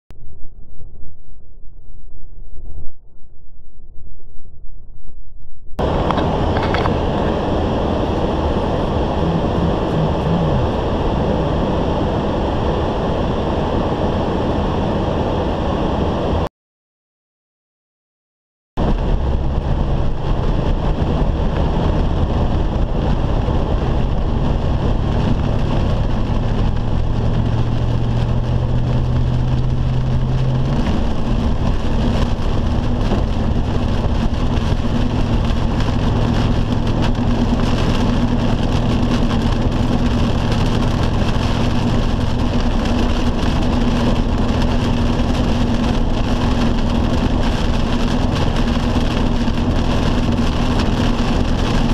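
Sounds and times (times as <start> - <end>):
rain on car: 5.8 - 11.7, 18.8 - 51.9
car engine hum: 5.8 - 16.4, 18.8 - 51.9
road noise: 5.8 - 16.5, 18.8 - 51.9.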